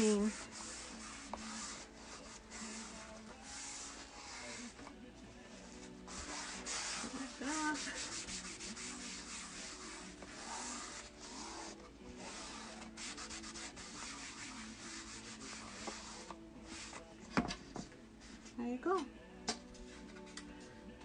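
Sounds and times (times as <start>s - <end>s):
cloth rubbing on chalkboard: 0.0s - 4.9s, 5.5s - 17.1s.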